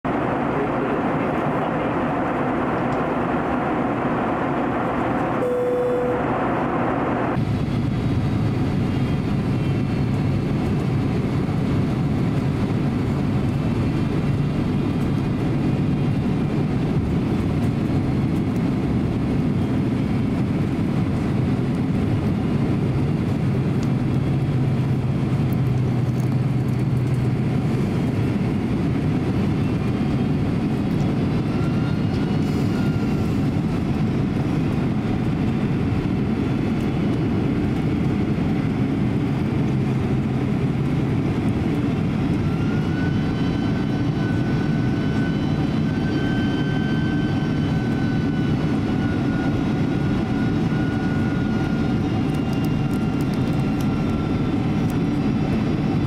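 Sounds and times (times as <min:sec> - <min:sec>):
airliner cabin engine rush: 0:00.0 - 0:56.0
low hum: 0:00.1 - 0:22.3
single-note tone: 0:05.4 - 0:06.3.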